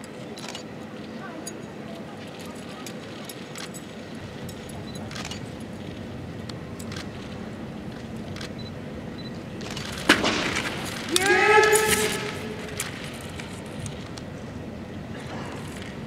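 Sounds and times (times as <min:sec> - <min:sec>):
faint light clinks: 0:00.0 - 0:07.4
person shouting: 0:11.1 - 0:12.8.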